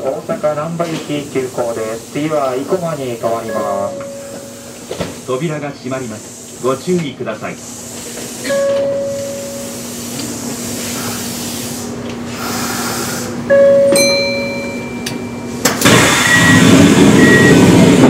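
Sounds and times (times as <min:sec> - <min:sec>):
train steady hum: 0:00.0 - 0:18.0
train doors shutting: 0:00.7 - 0:05.5, 0:06.2 - 0:18.0
short beeps: 0:03.5 - 0:04.7, 0:13.5 - 0:15.6, 0:16.2 - 0:16.6, 0:17.2 - 0:17.6.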